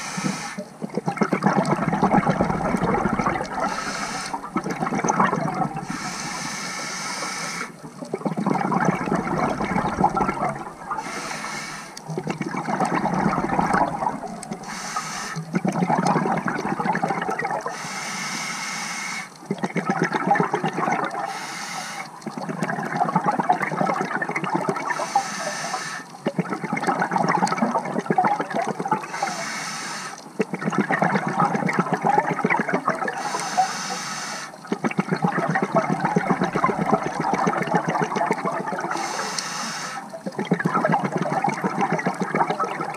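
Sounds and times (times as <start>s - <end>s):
regulator inhalation hiss: 0.0s - 0.6s, 3.6s - 4.4s, 5.8s - 7.7s, 11.0s - 12.0s, 14.6s - 15.4s, 17.7s - 19.3s, 21.3s - 22.2s, 24.9s - 26.1s, 29.1s - 30.2s, 33.2s - 34.6s, 38.9s - 40.1s
exhaled air bubbling: 0.0s - 18.0s, 19.2s - 42.9s.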